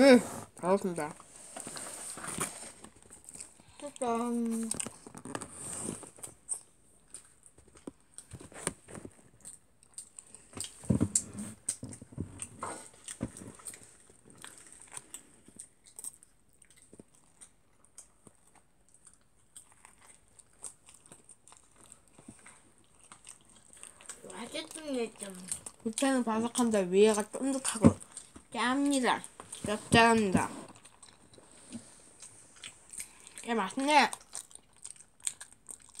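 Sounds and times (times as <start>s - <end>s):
person biting and chewing: 34.1s - 36.0s.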